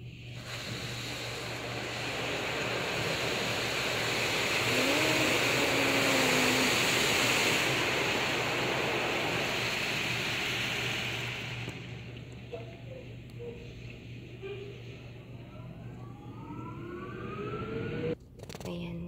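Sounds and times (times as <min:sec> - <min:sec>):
car wash spraying and brushing: 0:00.3 - 0:12.2.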